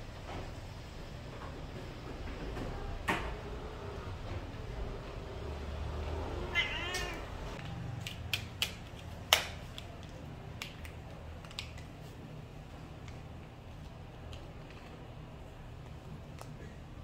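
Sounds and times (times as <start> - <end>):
cat meowing: 6.4 - 7.5.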